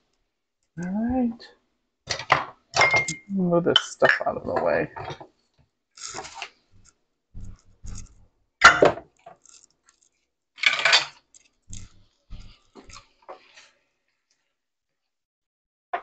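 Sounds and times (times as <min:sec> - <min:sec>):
utensils and dishes clattering: 0:02.1 - 0:05.2, 0:10.6 - 0:13.0.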